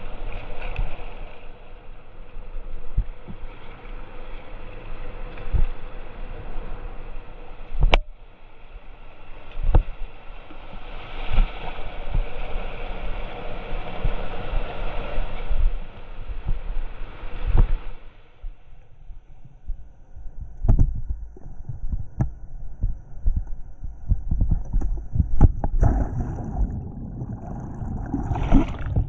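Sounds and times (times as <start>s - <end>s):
water thumping against boat: 24.1s - 29.0s.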